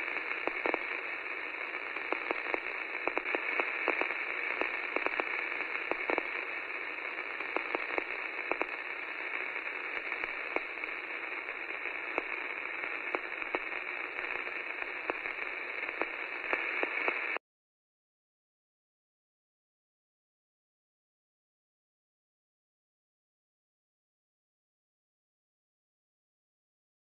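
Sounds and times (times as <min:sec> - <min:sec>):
radio static hiss: 0:00.0 - 0:17.4
static crackles and pops: 0:00.0 - 0:17.4.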